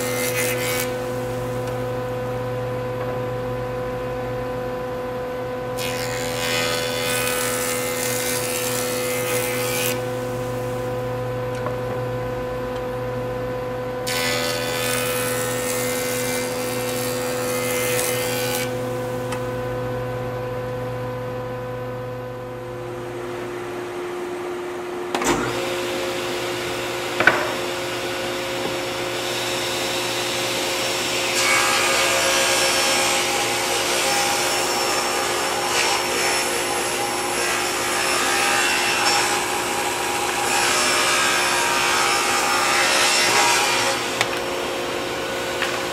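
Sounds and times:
table saw cutting board: 0:00.0 - 0:02.0, 0:05.8 - 0:11.0, 0:14.0 - 0:19.6, 0:25.1 - 0:45.9
table saw hum: 0:00.0 - 0:04.9, 0:05.6 - 0:45.9
jointer cutting board: 0:25.1 - 0:45.9.

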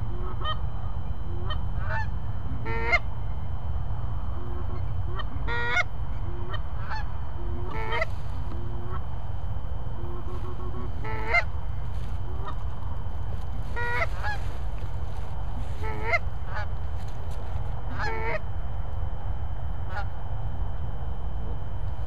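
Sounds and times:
goose honks: 0:00.0 - 0:00.6, 0:01.3 - 0:03.1, 0:04.4 - 0:09.0, 0:10.0 - 0:11.5, 0:12.2 - 0:12.7, 0:13.6 - 0:14.6, 0:15.6 - 0:16.7, 0:17.9 - 0:18.4, 0:19.9 - 0:20.1
steady low rumble: 0:00.0 - 0:22.0.

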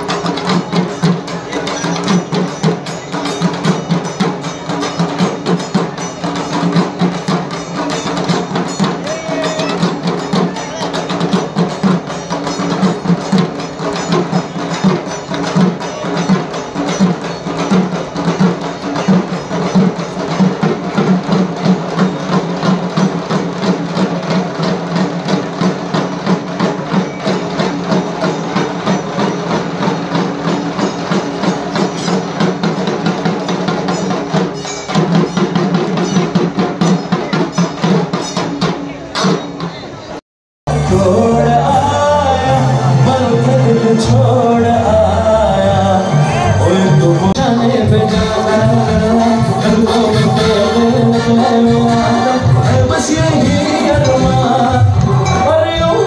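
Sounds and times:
barrel drums beaten with sticks: 0:00.0 - 0:39.7.

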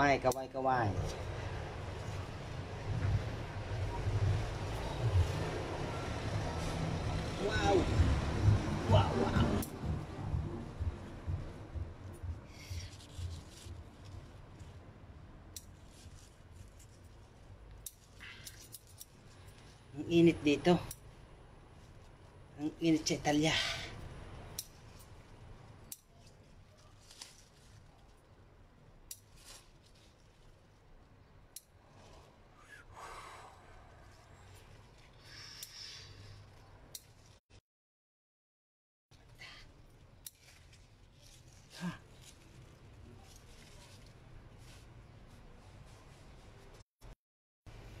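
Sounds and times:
plant leaves rustling: 0:00.0 - 0:10.0, 0:10.8 - 0:21.0, 0:24.4 - 0:32.5, 0:39.4 - 0:46.8.

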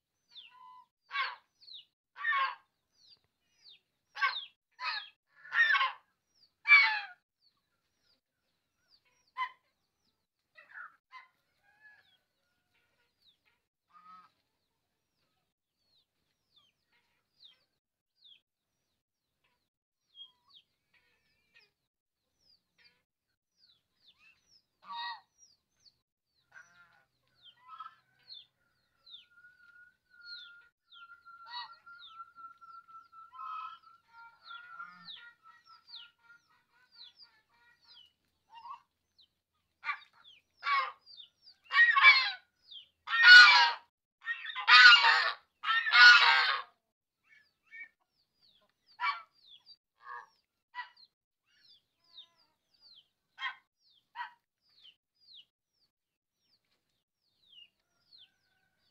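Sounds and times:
harsh bird calls: 0:26.5 - 0:38.8.

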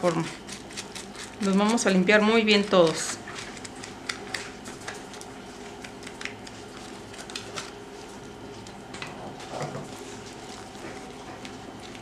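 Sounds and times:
dried chile pods crackling: 0:00.0 - 0:09.0
steady low hum: 0:00.0 - 0:12.0.

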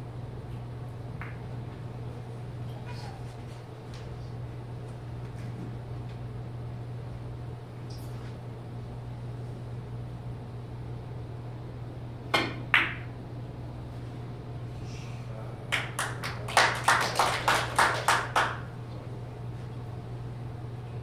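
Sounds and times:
spectators clapping: 0:15.7 - 0:18.8.

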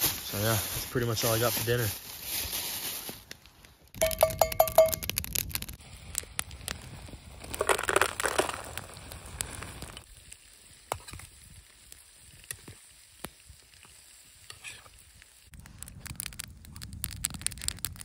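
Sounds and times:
campfire popping and clicking: 0:03.3 - 0:18.0
plastic bag crinkling: 0:07.4 - 0:09.0.

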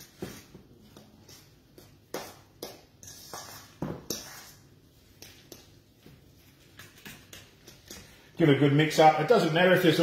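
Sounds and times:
spoon scraping metal bowl: 0:03.0 - 0:05.7.

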